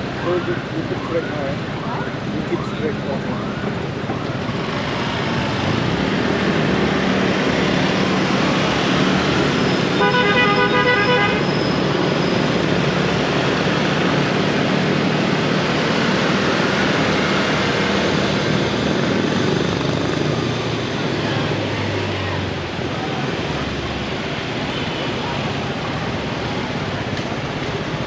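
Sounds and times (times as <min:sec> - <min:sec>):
city traffic din: 0:00.0 - 0:28.0
vehicle horn honking: 0:10.0 - 0:11.5.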